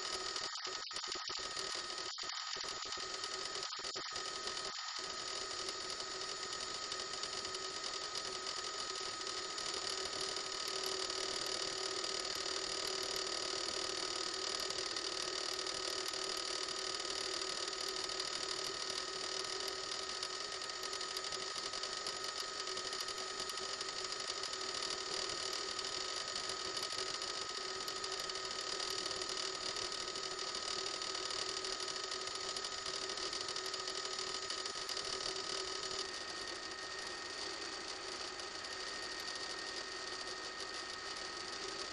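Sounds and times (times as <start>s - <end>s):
helicopter cabin drone: 32.6s - 41.9s.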